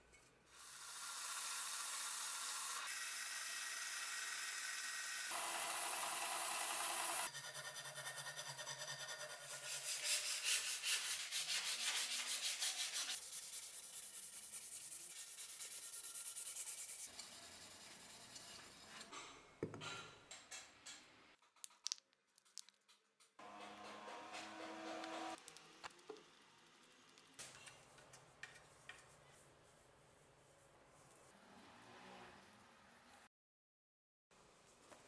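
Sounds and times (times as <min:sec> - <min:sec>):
sandpaper rubbing on wood: 0:09.0 - 0:18.9.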